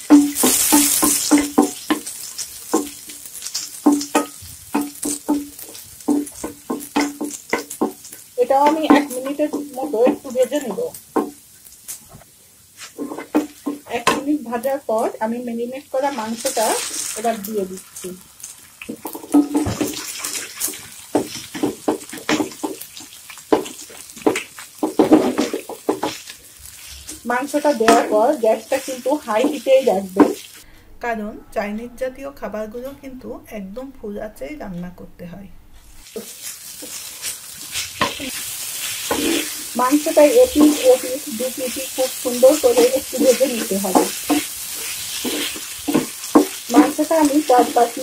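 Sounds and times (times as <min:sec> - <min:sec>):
wooden spatula knocking pan: 0:00.0 - 0:11.5, 0:12.8 - 0:15.2, 0:18.8 - 0:26.3, 0:27.1 - 0:30.5, 0:39.0 - 0:48.0
garlic sizzling in butter: 0:00.0 - 0:30.6, 0:35.9 - 0:48.0
wooden spatula scraping pan: 0:12.0 - 0:14.2, 0:23.5 - 0:30.6, 0:35.8 - 0:48.0.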